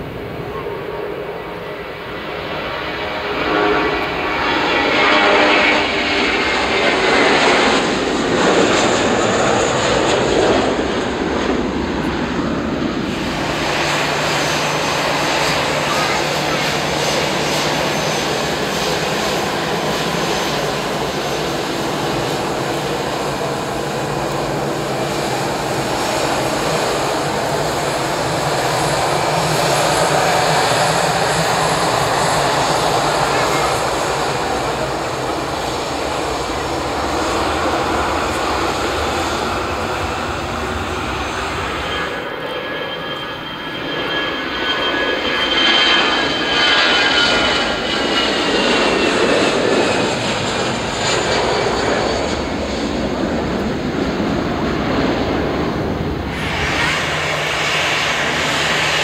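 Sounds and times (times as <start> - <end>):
jet engine rumble: 0.0 - 59.0
high whine: 55.4 - 59.0.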